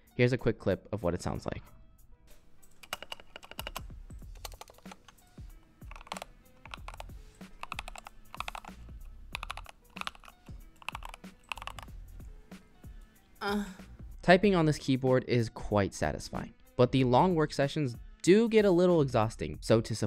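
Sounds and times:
mechanical keyboard typing: 2.7 - 5.2, 5.8 - 12.0.

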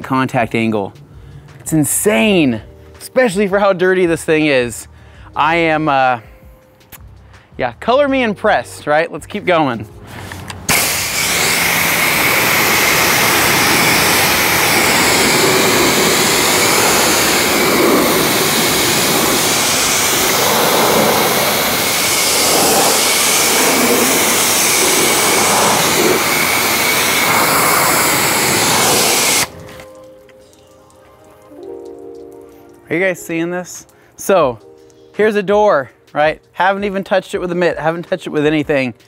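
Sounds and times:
pressure washer spraying: 10.2 - 30.6
water dripping: 29.4 - 35.0.

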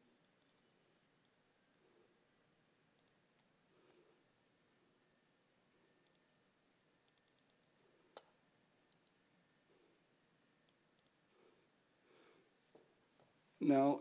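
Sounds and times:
computer mouse clicks: 0.2 - 1.4, 3.0 - 3.5, 6.0 - 6.3, 7.0 - 9.2, 10.6 - 11.2.

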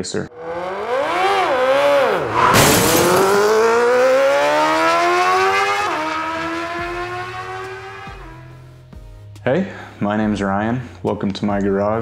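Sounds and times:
motorcycle engine accelerating: 0.3 - 8.6.

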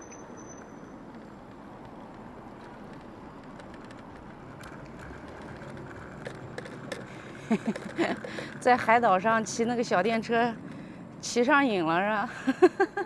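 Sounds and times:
road and wind noise: 0.0 - 13.0
light clicks and rattles: 1.0 - 10.8.

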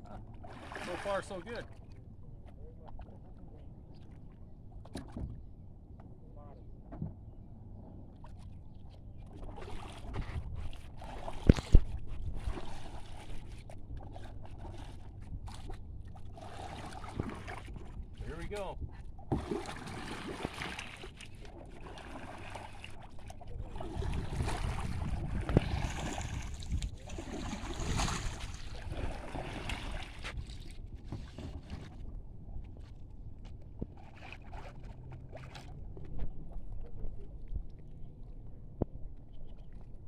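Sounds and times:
paddle splashing in water: 0.2 - 2.0, 8.2 - 32.1, 33.7 - 36.6
wind rumbling on microphone: 9.3 - 15.9, 23.0 - 34.0.

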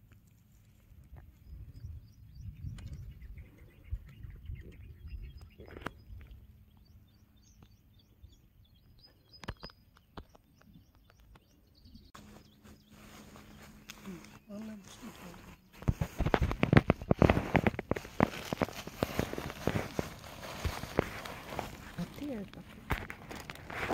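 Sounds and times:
small birds chirping: 0.0 - 23.9.

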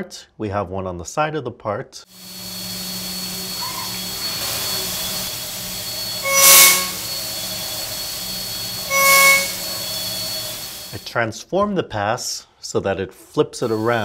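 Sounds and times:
cutter whine: 2.1 - 11.1, 13.6 - 14.0
milling machine hum and hiss: 2.1 - 11.1, 13.6 - 14.0.

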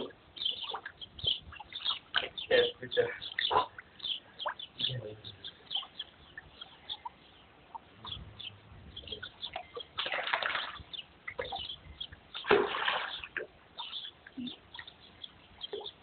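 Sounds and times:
water splashing: 9.2 - 16.0.

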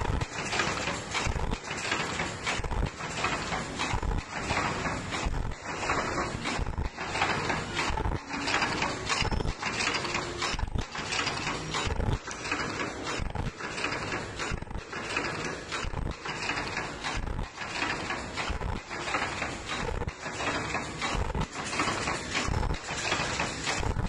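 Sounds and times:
machine clattering and clicking: 0.0 - 24.0.

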